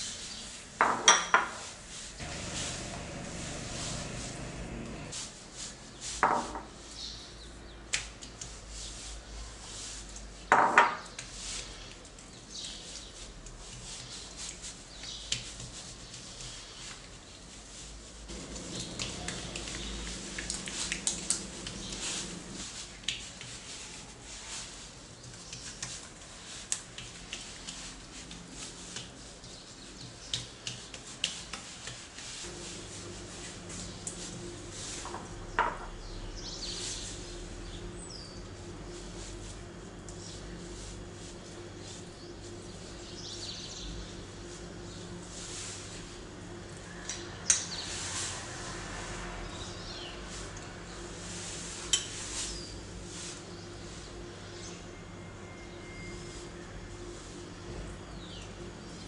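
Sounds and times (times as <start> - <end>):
hands rubbing oiled dough: 1.8 - 6.2, 7.9 - 10.5, 11.1 - 46.9, 47.5 - 54.8
sticky clicks and pats of dough: 7.9 - 8.6, 11.0 - 17.1, 18.3 - 23.7, 25.2 - 32.4.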